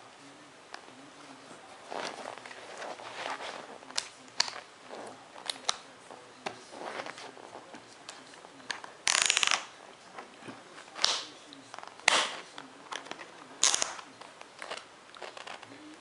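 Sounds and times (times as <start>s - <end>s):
plastic buckles clicking and rattling: 8.7s - 9.7s, 11.0s - 15.7s.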